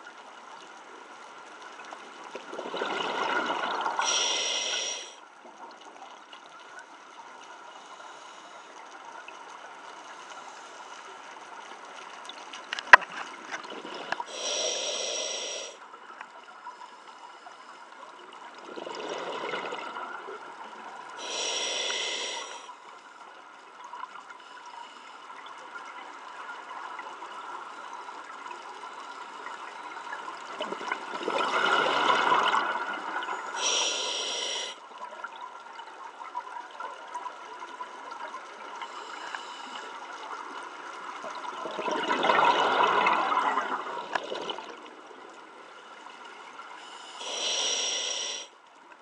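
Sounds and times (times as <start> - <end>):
faint steady hiss: 0.0 - 49.0
exhaled bubbles rushing underwater: 2.4 - 5.0, 18.4 - 21.2, 30.2 - 33.6, 40.7 - 45.4.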